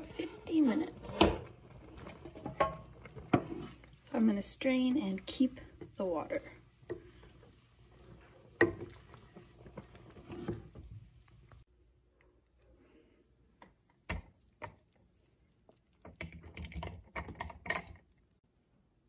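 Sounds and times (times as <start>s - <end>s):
wooden spoon scraping metal pot: 0.0s - 11.6s.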